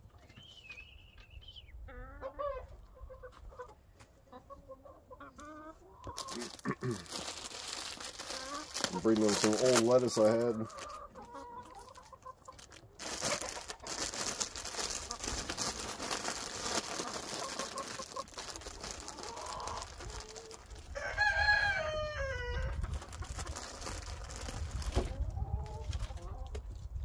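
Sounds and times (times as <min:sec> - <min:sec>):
chickens clucking: 0:01.8 - 0:27.0
rustling: 0:06.1 - 0:10.9, 0:11.7 - 0:21.0, 0:22.8 - 0:25.2
rooster crowing: 0:20.9 - 0:22.8.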